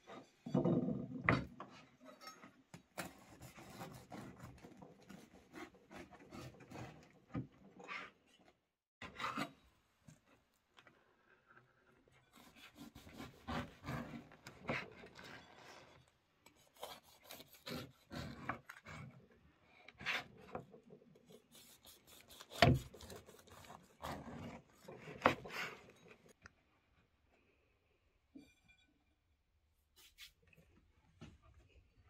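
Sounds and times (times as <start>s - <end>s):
knife sawing through bread crust: 3.0s - 7.1s, 12.2s - 15.9s, 16.5s - 19.2s, 21.3s - 25.9s.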